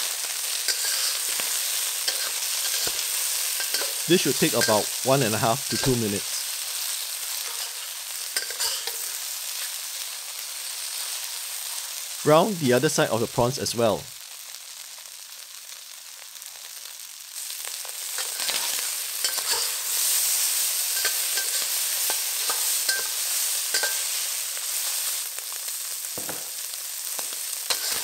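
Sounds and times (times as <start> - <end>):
prawns sizzling in hot oil: 0.0 - 28.0
metal spatula scraping wok: 0.4 - 6.5, 7.3 - 9.8, 18.0 - 25.2, 27.1 - 28.0.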